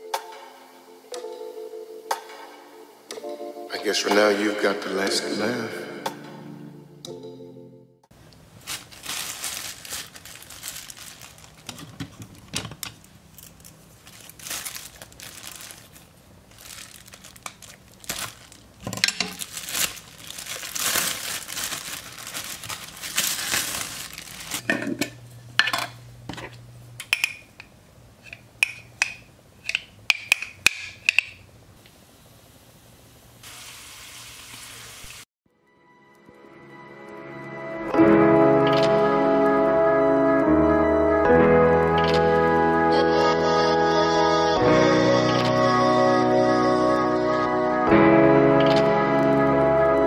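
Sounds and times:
plastic bag crinkling: 8.3 - 24.7.

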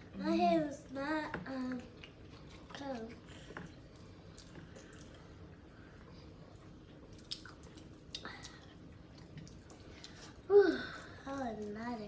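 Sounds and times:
chewing: 1.7 - 10.5.

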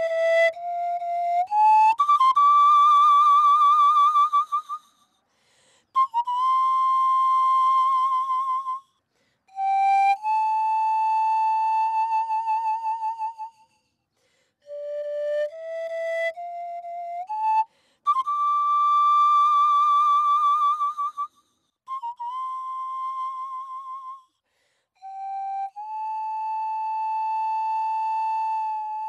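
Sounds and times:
pan flute melody: 0.0 - 4.8, 6.0 - 8.8, 9.6 - 13.6, 14.7 - 21.3, 21.9 - 24.2, 25.0 - 29.0.

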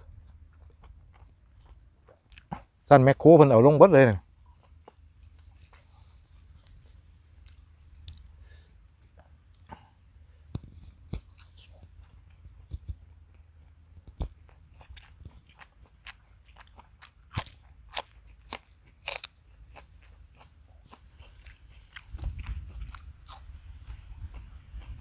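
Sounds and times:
crunching spring onion: 10.6 - 25.0
wind rumble on microphone: 21.9 - 25.0.

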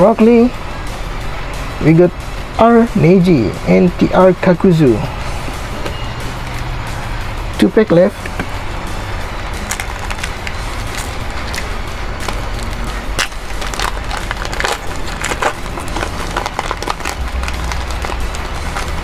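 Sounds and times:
steady low rumble: 0.0 - 19.0
foil wrapper crinkling and tearing: 9.6 - 19.0.

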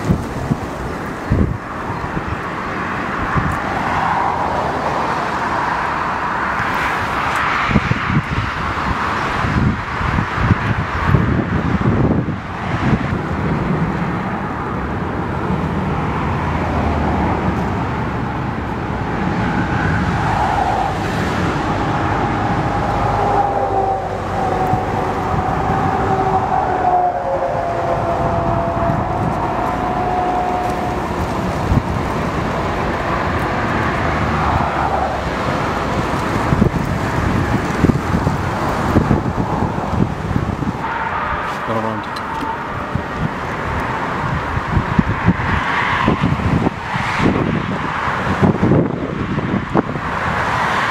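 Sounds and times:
wind on microphone: 0.0 - 50.9
jet airliners landing: 13.2 - 49.9
engine whine dropping in pitch: 21.6 - 31.9.

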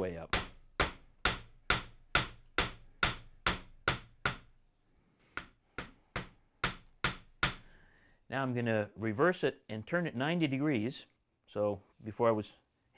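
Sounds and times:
hammer striking copper bar: 0.0 - 4.7, 5.4 - 7.8.

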